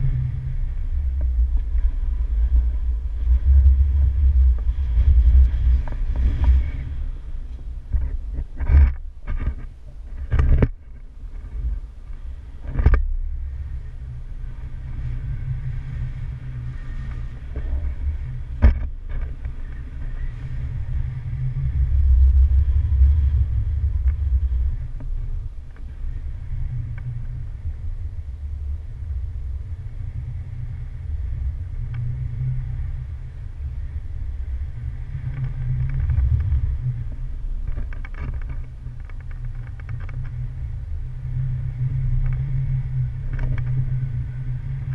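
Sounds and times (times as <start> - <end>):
wind buffeting microphone: 0.0 - 44.9.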